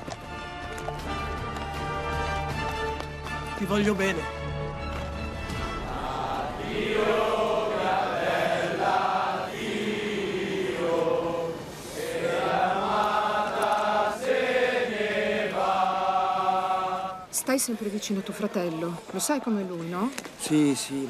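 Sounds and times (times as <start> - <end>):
choir singing slow melody: 5.5 - 20.0
singers breathing: 11.6 - 12.3.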